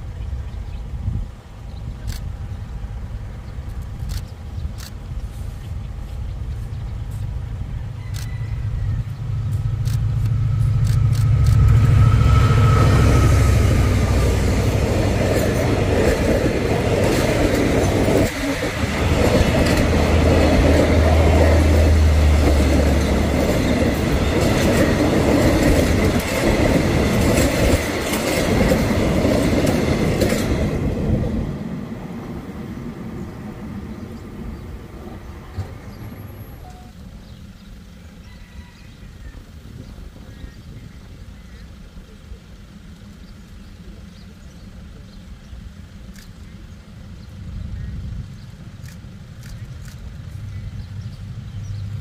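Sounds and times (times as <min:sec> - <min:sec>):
diesel locomotive drone: 0:00.0 - 0:52.0
train wheels clattering over rail joints: 0:13.8 - 0:31.2.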